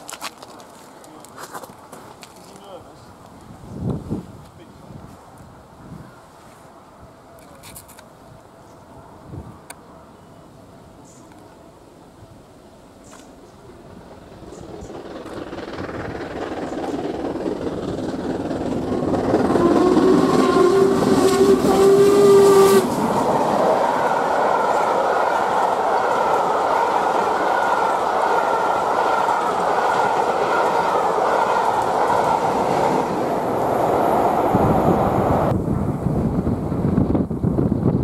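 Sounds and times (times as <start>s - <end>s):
steam locomotive approaching: 8.2s - 38.0s
wheels clattering over rail joints: 13.1s - 34.2s
long low train whistle: 19.4s - 23.1s.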